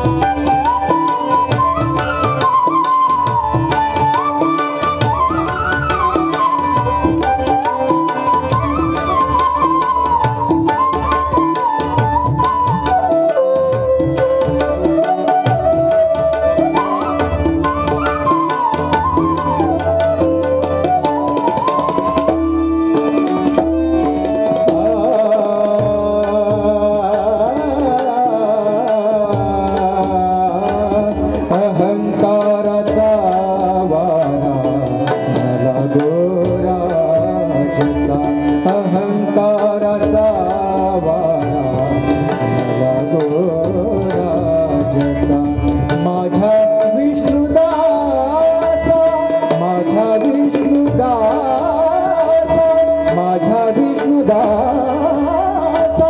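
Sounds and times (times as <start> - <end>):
bamboo flute: 0.0 - 25.9, 48.5 - 51.0
hand drums: 0.0 - 56.0
sustained harmonium: 0.0 - 56.0
man singing: 23.9 - 56.0.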